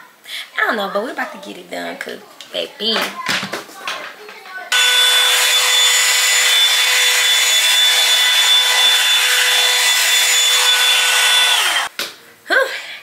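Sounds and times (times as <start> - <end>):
hair dryer running: 4.8 - 11.9.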